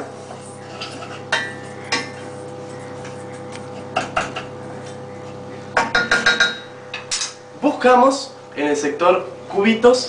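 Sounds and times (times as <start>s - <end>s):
spoon tapping metal pot: 5.8s - 6.7s.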